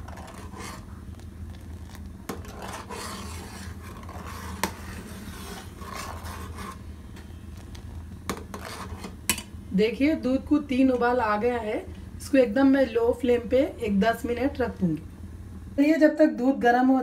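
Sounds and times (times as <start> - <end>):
ladle scraping steel pot: 0.0 - 0.9, 1.7 - 6.9, 8.3 - 9.4
steady low hum: 0.0 - 17.0.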